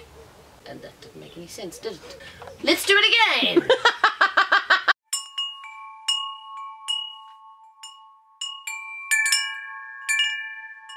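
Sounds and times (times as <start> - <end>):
chimes ringing: 5.1 - 10.9.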